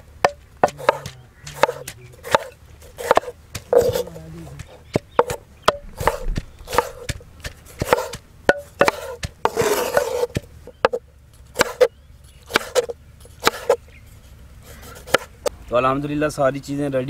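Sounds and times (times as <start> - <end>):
knife chopping on wooden board: 0.2 - 13.8, 14.8 - 15.5
knife scraping board: 0.6 - 8.2, 8.8 - 11.0, 12.5 - 13.8, 14.6 - 15.4.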